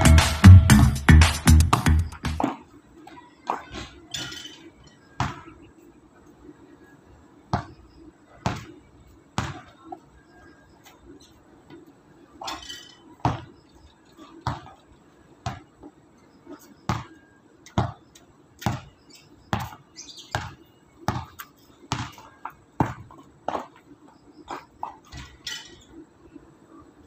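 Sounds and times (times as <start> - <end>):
basketball bouncing on hard court: 1.1 - 2.6, 5.2 - 5.5, 8.4 - 8.7, 9.4 - 9.7, 13.2 - 13.5, 14.4 - 14.8, 15.4 - 15.7, 16.9 - 18.0, 18.6 - 18.9, 19.5 - 23.8.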